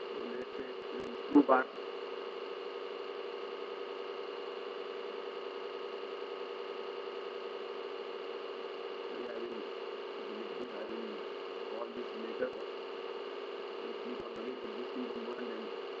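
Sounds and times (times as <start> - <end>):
electrical hum and hiss: 0.0 - 16.0.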